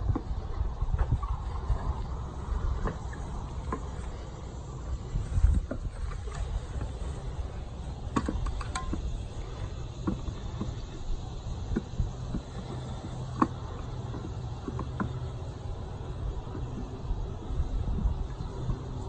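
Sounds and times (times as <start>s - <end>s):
rope clicking and knocking on wood: 8.1s - 9.2s.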